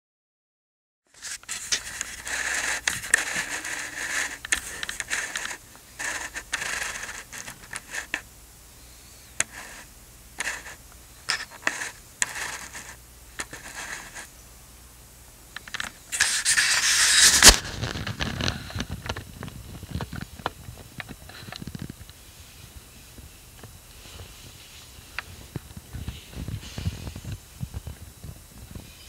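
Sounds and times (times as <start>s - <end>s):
hand scratching dog fur: 1.2s - 8.2s, 9.4s - 14.3s, 16.1s - 17.9s.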